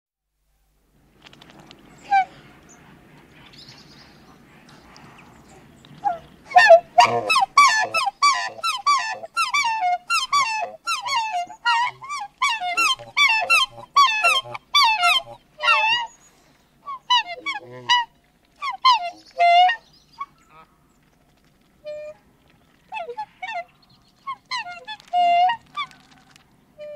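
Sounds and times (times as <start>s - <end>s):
swans calling: 1.7s - 26.9s.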